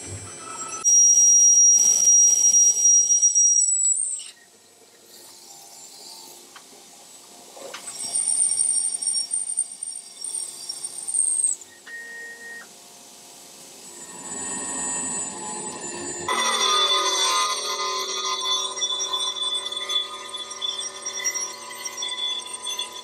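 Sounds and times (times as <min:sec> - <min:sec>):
milling machine whine: 0:13.7 - 0:23.0.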